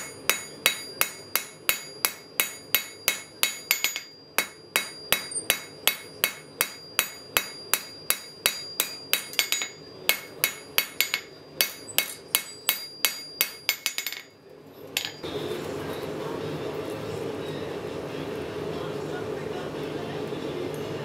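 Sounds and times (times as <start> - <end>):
hammer striking steel on anvil: 0.0 - 14.4, 15.0 - 15.3.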